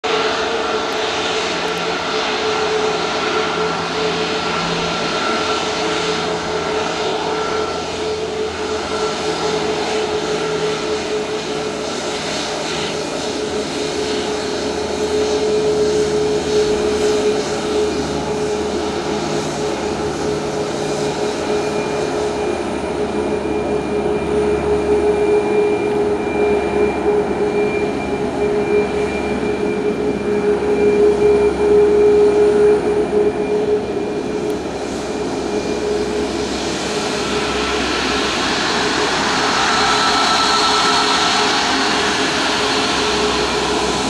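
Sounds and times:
jet engine whine: 0.0 - 44.0
broad rushing noise: 34.8 - 44.0.

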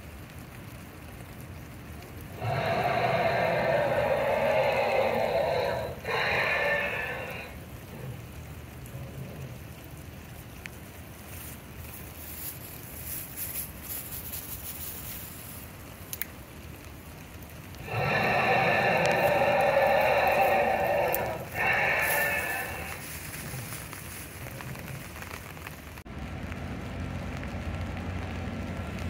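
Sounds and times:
dinosaur roar through speakers: 2.3 - 9.8, 17.7 - 25.5.

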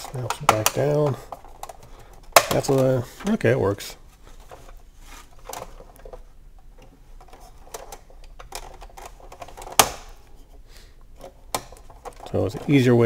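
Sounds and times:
loud sharp plastic snap: 2.3 - 2.9, 9.6 - 10.2
plastic toy parts clicking: 7.2 - 10.0.

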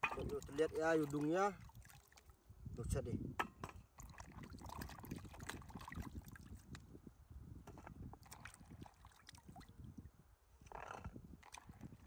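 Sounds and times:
faint water sloshing: 0.0 - 2.5.

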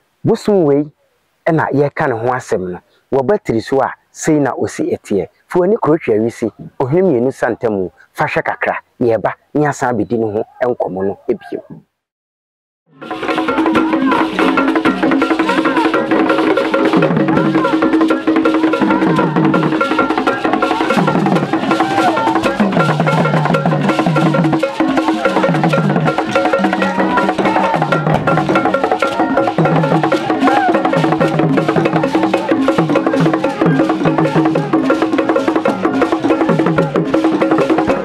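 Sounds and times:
barrel drums: 13.0 - 38.0
steady held tone: 13.0 - 38.0
fast clicking beat: 13.1 - 38.0.

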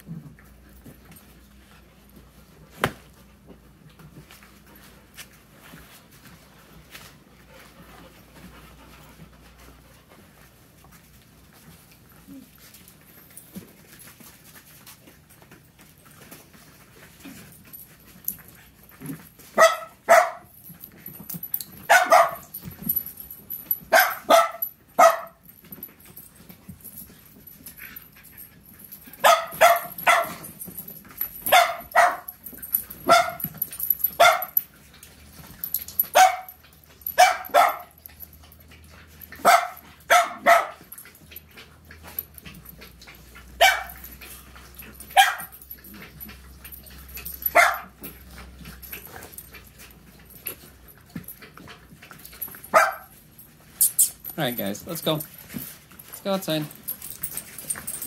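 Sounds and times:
puppies yapping: 21.9 - 22.5, 29.2 - 30.4, 31.4 - 34.6, 36.0 - 41.4, 43.6 - 44.2, 45.0 - 45.8, 46.5 - 48.1.

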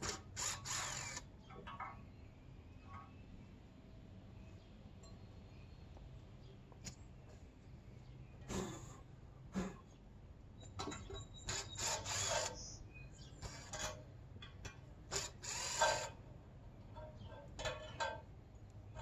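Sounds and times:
metal ladder clicks and rattles: 16.9 - 18.3.

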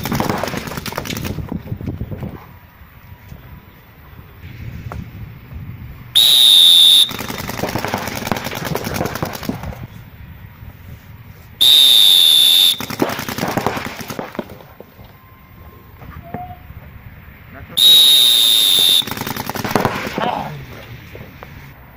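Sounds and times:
paintball markers rapid fire: 0.0 - 1.5, 6.2 - 9.9, 12.0 - 14.7, 18.3 - 20.3.

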